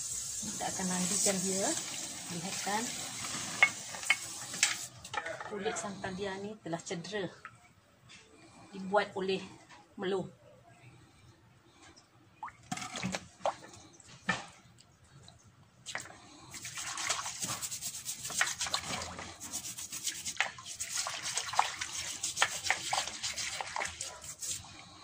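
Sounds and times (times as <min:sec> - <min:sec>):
splashes and knocks in water: 0:12.4 - 0:14.7, 0:20.3 - 0:24.0
water sloshing: 0:12.4 - 0:24.2
brush scrubbing shell: 0:16.5 - 0:25.0.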